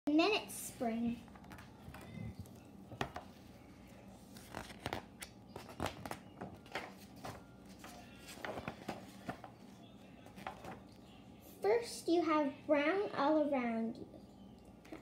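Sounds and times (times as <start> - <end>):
book pages turning: 1.3 - 11.0.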